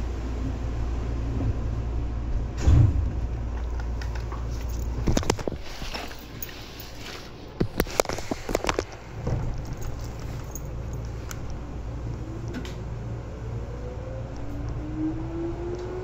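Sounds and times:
train rumble and hum: 0:00.0 - 0:16.0.

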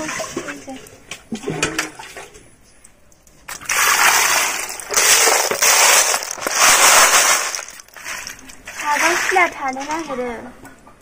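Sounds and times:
snail shells rattling: 0:03.7 - 0:10.3.

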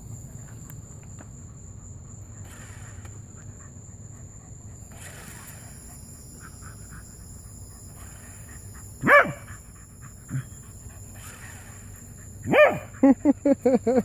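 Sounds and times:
dog barking sharply: 0:09.0 - 0:09.4, 0:12.5 - 0:12.9.

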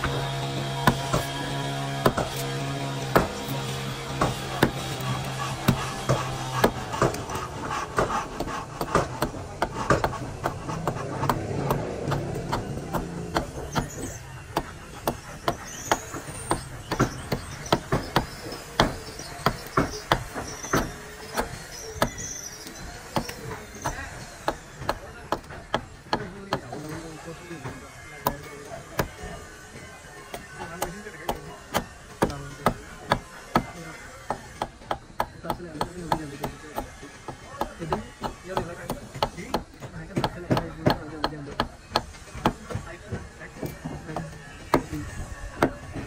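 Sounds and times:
hand tools knocking on timber: 0:04.1 - 0:13.9, 0:14.6 - 0:22.2, 0:30.3 - 0:45.0.

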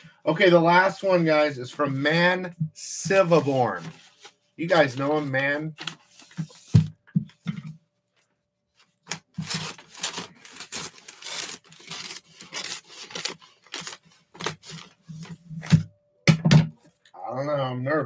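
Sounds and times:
envelope being torn open: 0:09.1 - 0:15.0.

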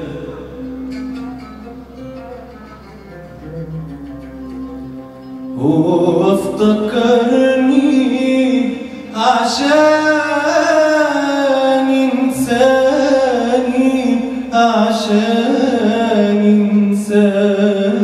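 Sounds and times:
man singing ornamented notes: 0:00.0 - 0:01.9, 0:05.4 - 0:18.0
band with qanun oud and drums: 0:00.0 - 0:18.0.

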